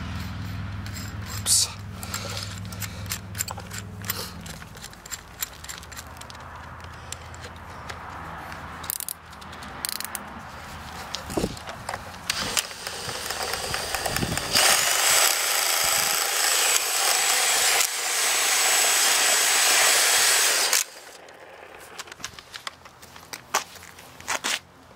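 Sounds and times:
clicks and handling noise: 0.2 - 15.3, 20.6 - 24.7
cordless drill high whine: 12.3 - 21.9
short rising drill whirs: 12.3 - 22.1.

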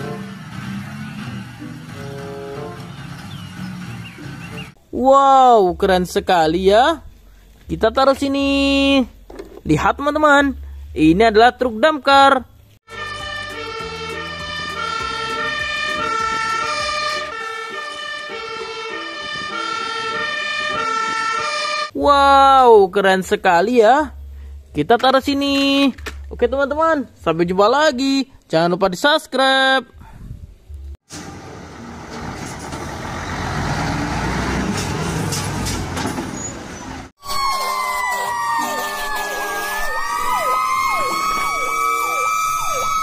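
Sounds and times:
diesel engine of passing truck: 0.0 - 4.8, 31.1 - 37.1
truck engine rumbling: 0.0 - 5.0, 12.4 - 22.5, 30.0 - 37.2
two-tone fire engine siren: 12.9 - 22.0, 37.2 - 43.0.

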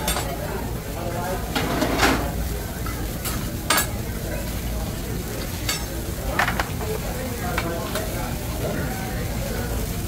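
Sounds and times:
metal utensils clinking on griddle: 0.0 - 0.4, 1.5 - 4.0, 5.4 - 6.8
food sizzling on griddle: 0.0 - 10.0.

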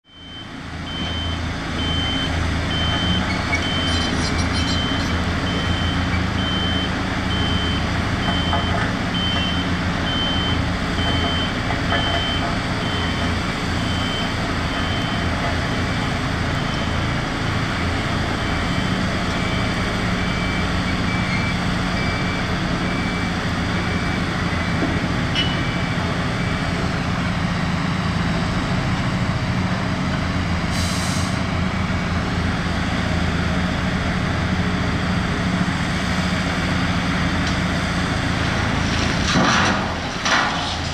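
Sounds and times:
reversing alarm beeping: 0.1 - 17.2, 18.4 - 27.4
heavy diesel machinery running: 0.1 - 40.9.

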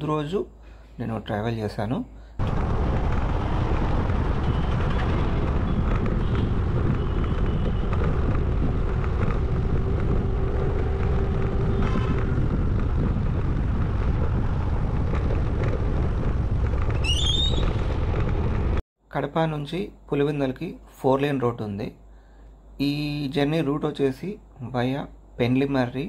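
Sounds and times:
road and engine noise: 2.4 - 18.8
wind buffeting microphone: 2.4 - 18.8.

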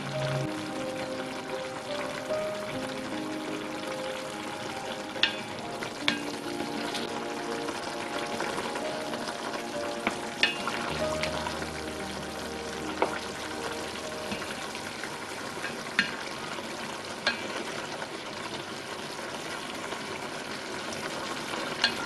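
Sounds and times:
sauce simmering and bubbling in pot: 7.6 - 22.0.

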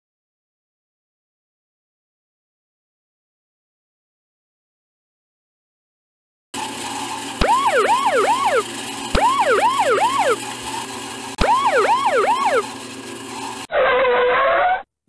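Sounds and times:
siren-like alarm whoops: 7.4 - 10.4, 11.4 - 12.7.

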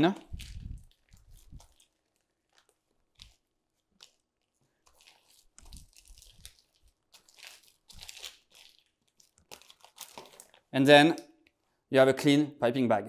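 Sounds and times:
scraper crinkling on plastic bag: 0.3 - 10.7.

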